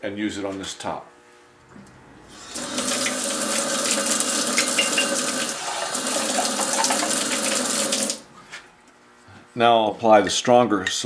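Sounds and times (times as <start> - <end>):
faucet water splashing into jar: 2.5 - 8.2.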